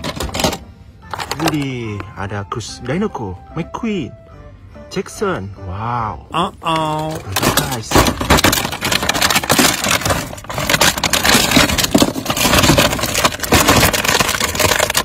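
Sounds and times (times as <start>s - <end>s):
plastic toy cars clattering in a bin: 0.0s - 1.8s, 6.7s - 15.0s.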